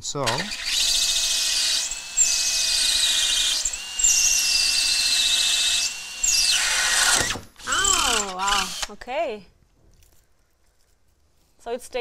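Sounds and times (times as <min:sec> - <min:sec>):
drill motor whine: 0:00.2 - 0:08.9
drill bit cutting hiss: 0:00.2 - 0:09.0.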